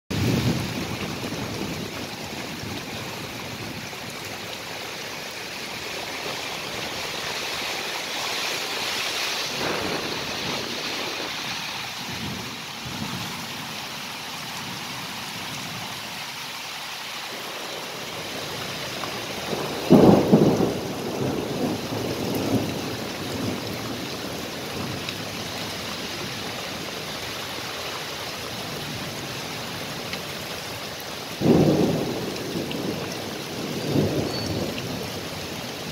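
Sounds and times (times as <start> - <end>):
thunder rumbling: 0.1 - 4.2, 8.6 - 13.7, 18.3 - 26.9, 31.4 - 35.9
heavy rain pouring: 0.1 - 35.9.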